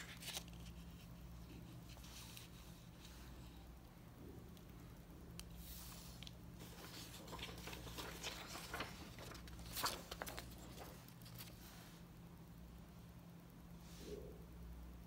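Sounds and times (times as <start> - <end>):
paper page turning: 0.0 - 3.1, 5.6 - 11.7
steady low hum: 0.0 - 15.0.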